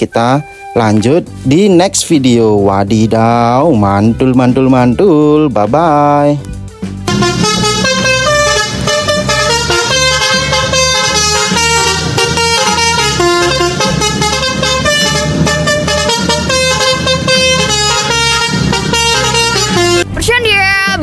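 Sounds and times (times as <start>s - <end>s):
truck horns playing a tune: 0.0s - 1.8s, 7.0s - 20.2s.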